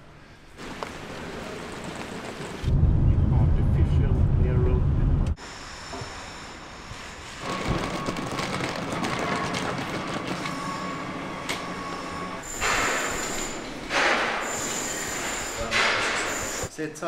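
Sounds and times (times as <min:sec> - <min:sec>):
wheels clicking over joints: 0:00.6 - 0:02.6, 0:07.6 - 0:10.6
suitcase wheels rolling: 0:00.6 - 0:02.7, 0:07.4 - 0:12.4.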